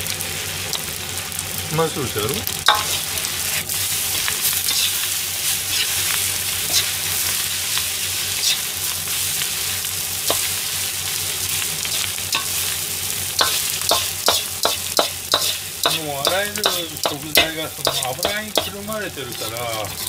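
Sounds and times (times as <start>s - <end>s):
fried rice sizzling in a wok: 0.0s - 20.0s
metal ladle scraping a pan: 2.6s - 6.1s, 6.7s - 7.0s, 8.4s - 8.7s, 13.4s - 20.0s.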